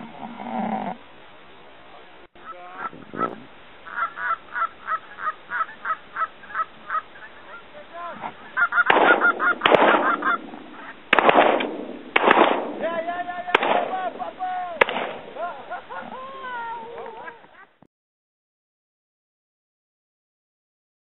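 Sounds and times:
geese honking: 0:02.4 - 0:11.2.

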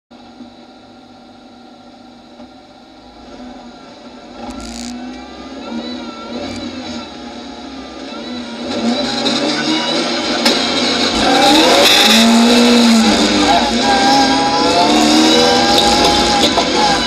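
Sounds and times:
car engine revving: 0:03.0 - 0:17.0.

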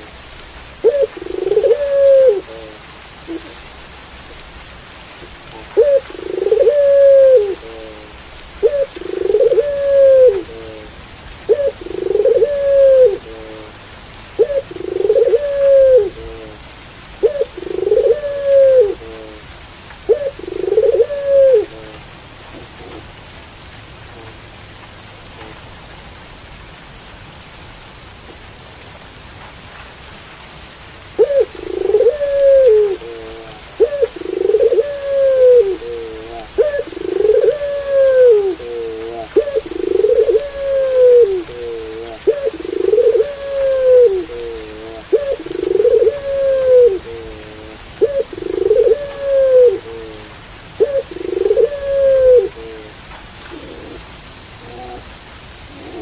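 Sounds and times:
rain hissing: 0:00.0 - 0:56.0
dove cooing: 0:00.8 - 0:03.6, 0:05.5 - 0:13.8, 0:14.4 - 0:19.4, 0:20.0 - 0:22.0, 0:31.2 - 0:56.0.

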